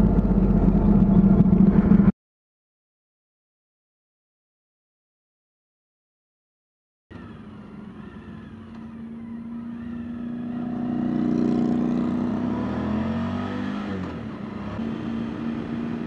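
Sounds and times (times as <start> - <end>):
motorcycle engine running: 0.0 - 2.1, 8.8 - 12.6.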